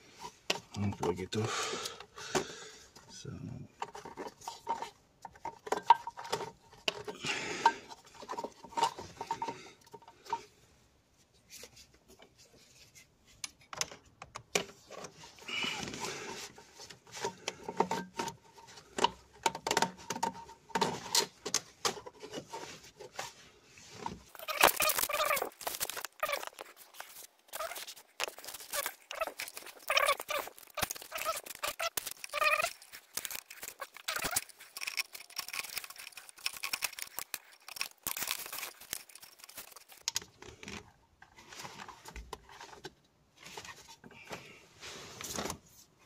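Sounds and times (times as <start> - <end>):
plastic connectors clicking: 24.3 - 40.3.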